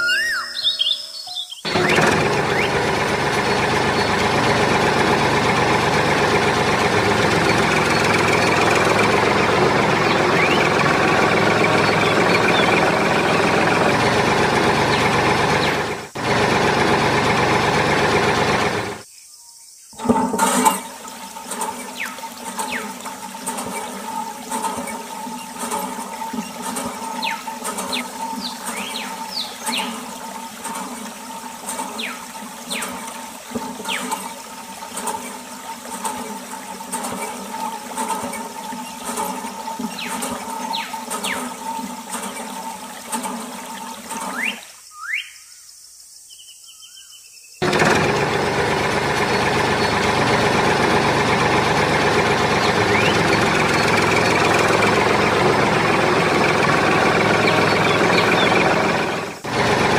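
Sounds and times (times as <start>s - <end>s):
engine running loudly: 1.6s - 19.0s, 20.0s - 44.5s, 47.6s - 59.9s
pump hum: 1.6s - 19.0s, 20.0s - 44.7s, 47.6s - 59.9s
water flowing through tube: 20.0s - 44.7s.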